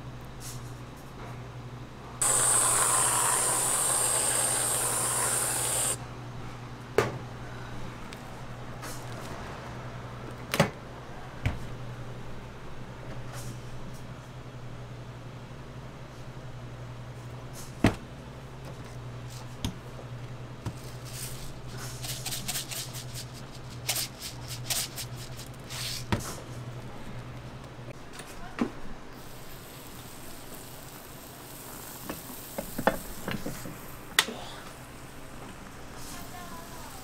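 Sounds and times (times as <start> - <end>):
faint hiss: 2.2 - 6.0, 29.1 - 37.0.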